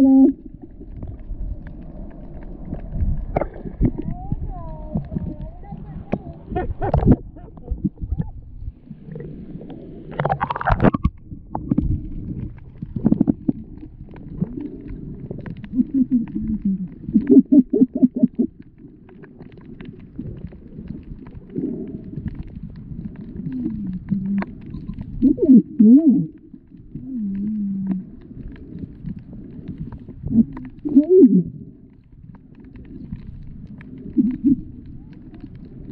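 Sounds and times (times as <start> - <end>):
underwater rumbling: 0.0 - 35.9
water splash: 0.5 - 4.2, 9.0 - 16.4.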